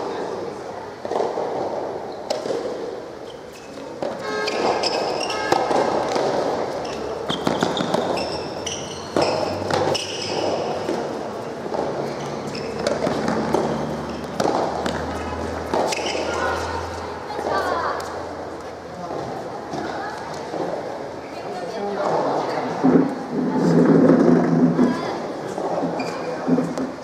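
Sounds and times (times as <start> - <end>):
ball bouncing on hard court: 1.0 - 18.2
rackets hitting ball: 1.0 - 20.8
shoe squeaks: 3.2 - 14.4, 15.0 - 17.0, 25.9 - 26.5.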